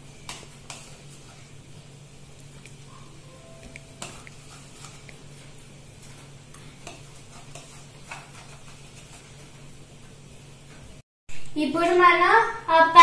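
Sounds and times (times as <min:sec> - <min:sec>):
spoon stirring thick batter: 0:00.0 - 0:10.1
low steady hum: 0:00.0 - 0:12.8.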